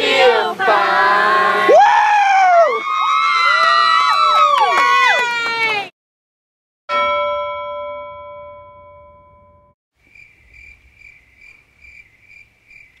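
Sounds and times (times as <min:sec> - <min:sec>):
bell-like chime: 0:06.9 - 0:09.8
cricket chirping: 0:10.0 - 0:13.0.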